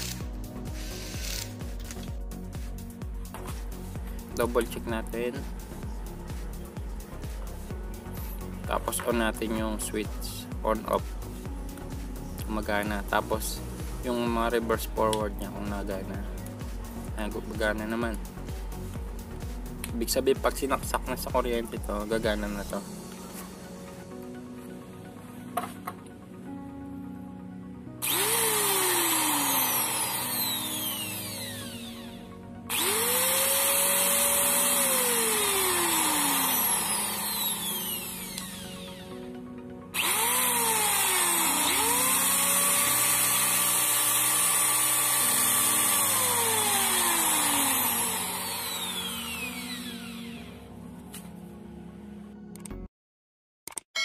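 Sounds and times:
electric drill motor whining: 0:00.0 - 0:02.2, 0:28.0 - 0:50.7.

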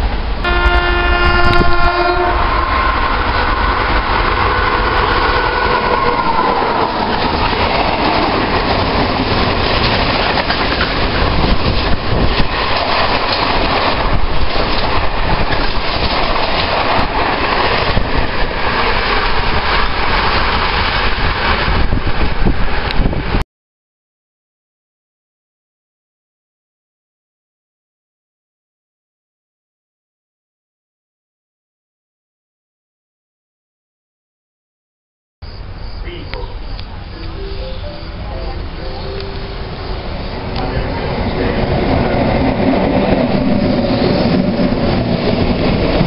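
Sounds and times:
train horn: 0:00.4 - 0:07.0
freight wagons clacking over rails: 0:06.4 - 0:21.9.

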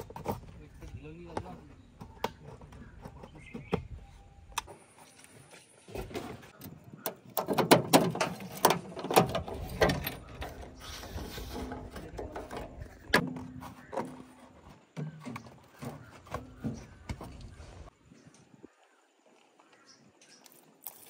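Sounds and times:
mechanical clattering and knocks: 0:07.1 - 0:10.8.

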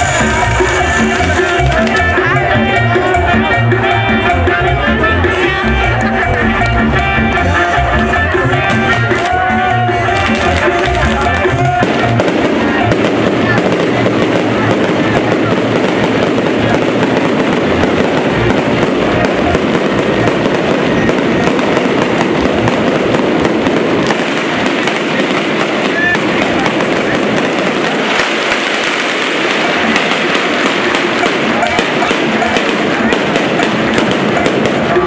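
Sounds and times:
fireworks crackling: 0:00.0 - 0:35.0.

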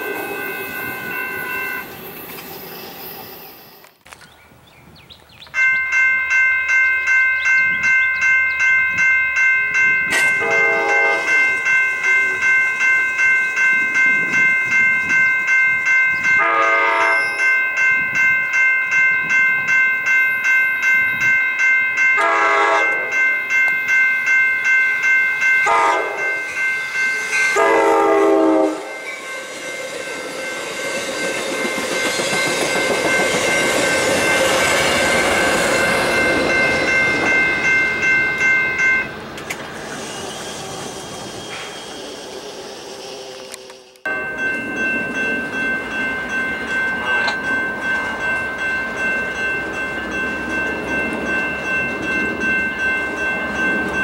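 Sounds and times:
crossing warning bell ringing: 0:00.0 - 0:03.9, 0:05.6 - 0:54.0
train wheels rumbling on rail: 0:00.0 - 0:04.3, 0:25.7 - 0:54.0
train horn: 0:10.2 - 0:12.4, 0:16.4 - 0:17.4, 0:22.2 - 0:23.2, 0:25.6 - 0:26.5, 0:27.5 - 0:29.2.

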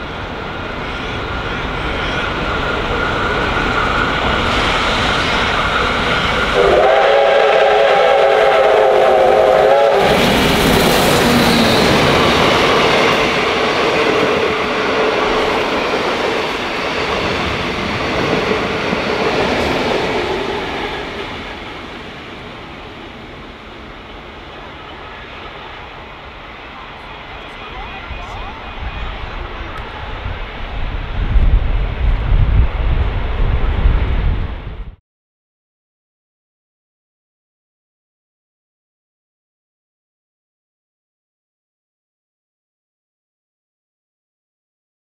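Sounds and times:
steam locomotive whistle: 0:04.4 - 0:12.5.

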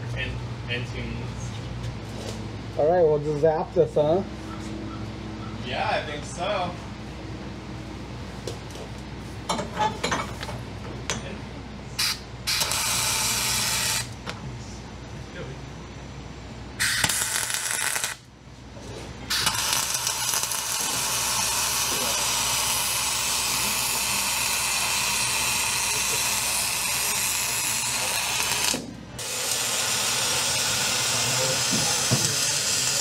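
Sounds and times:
welding arc crackling hiss: 0:12.0 - 0:14.2, 0:16.8 - 0:18.3, 0:19.3 - 0:33.0.

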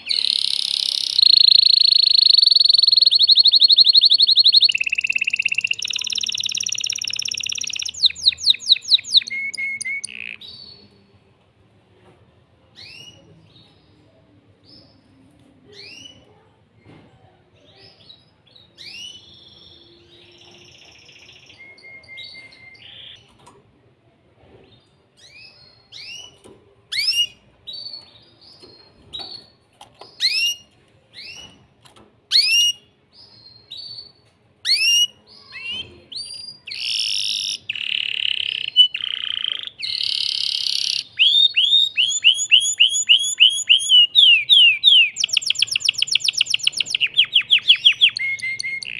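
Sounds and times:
canary singing: 0:00.0 - 0:10.9, 0:18.8 - 0:23.3, 0:25.2 - 0:31.6, 0:32.3 - 0:48.9.

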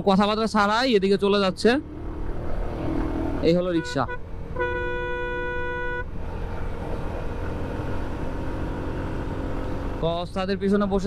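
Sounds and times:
motorcycle engine: 0:01.3 - 0:10.4
vehicle horn: 0:03.7 - 0:06.1.

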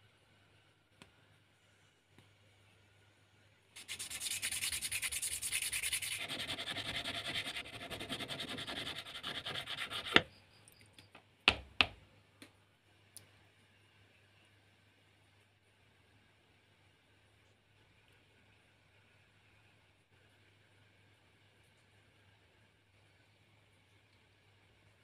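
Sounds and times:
hand sanding plastic: 0:03.8 - 0:10.3.

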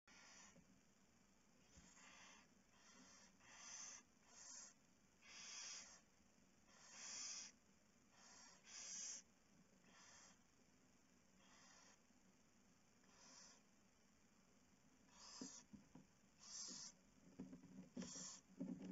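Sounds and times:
owl hissing snore calls: 0:00.1 - 0:00.6, 0:01.6 - 0:06.1, 0:06.7 - 0:10.4, 0:11.4 - 0:12.0, 0:13.1 - 0:13.7, 0:15.1 - 0:15.7, 0:16.4 - 0:17.0, 0:18.0 - 0:18.5.

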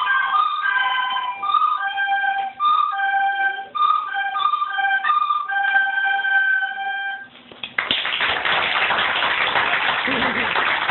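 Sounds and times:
children playing recorders: 0:00.0 - 0:07.4
audience applause: 0:07.8 - 0:10.9.

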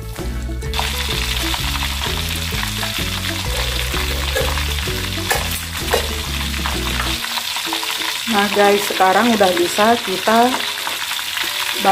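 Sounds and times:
background music with bass line: 0:00.0 - 0:07.3
chicken sizzling in hot oil: 0:00.7 - 0:11.9.

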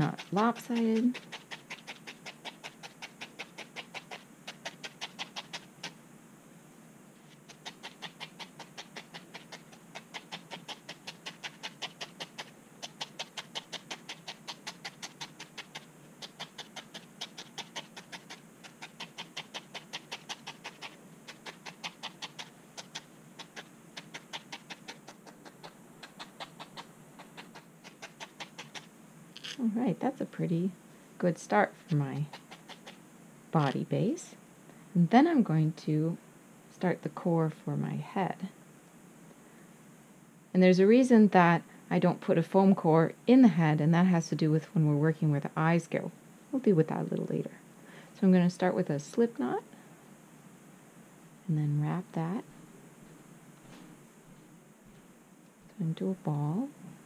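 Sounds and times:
felting needle stabbing wool: 0:00.0 - 0:05.7.

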